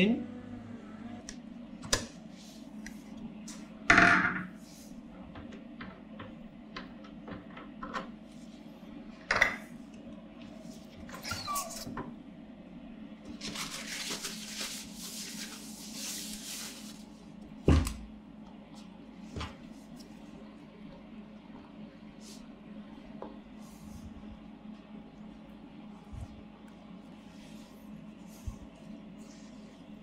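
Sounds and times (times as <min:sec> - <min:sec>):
paper towel rustling: 0:13.3 - 0:17.3.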